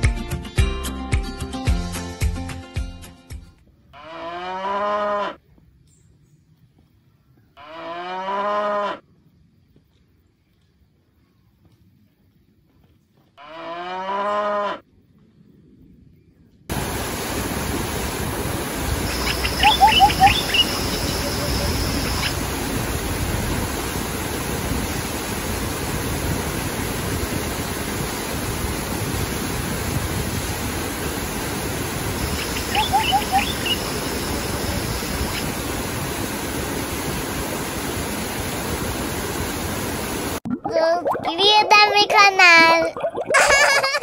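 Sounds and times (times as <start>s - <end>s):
cow mooing: 4.0s - 5.4s, 7.6s - 9.0s, 13.4s - 14.8s
stream cascading over rocks: 16.7s - 40.4s
bird chirping: 19.0s - 22.4s, 32.2s - 35.5s.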